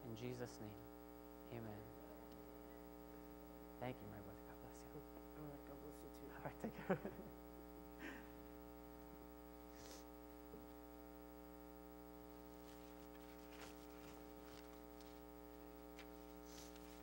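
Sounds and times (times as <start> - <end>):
electrical mains hum: 0.0 - 17.0
faint rustles: 12.4 - 17.0.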